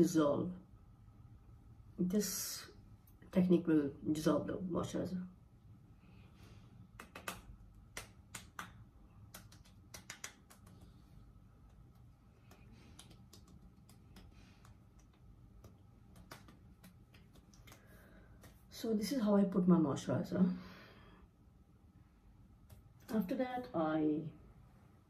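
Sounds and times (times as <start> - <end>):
low room hum: 0.0 - 25.0
fingertips patting skin: 6.9 - 18.6.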